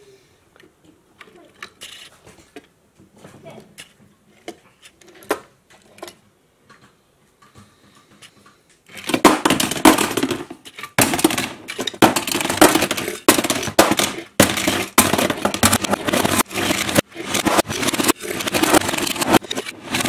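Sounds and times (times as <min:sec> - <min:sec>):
toy car wheels rattling and scraping: 0:01.3 - 0:02.7, 0:08.1 - 0:20.0
metal cars clattering on plastic: 0:08.9 - 0:20.0.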